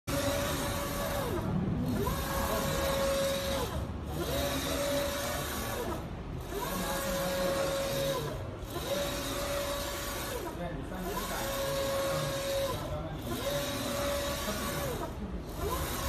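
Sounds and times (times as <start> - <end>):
printer carriage whine: 0.1 - 16.0.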